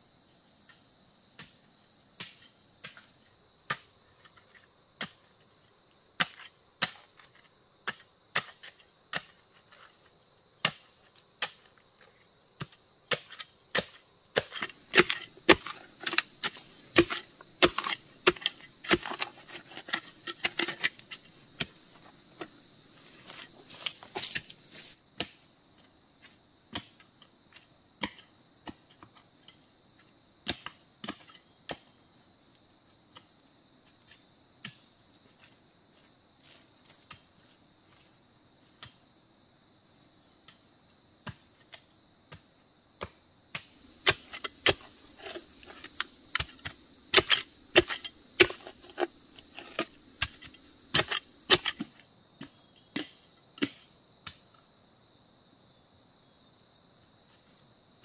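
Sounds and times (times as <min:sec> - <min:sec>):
high insect drone: 0:31.1 - 0:58.0.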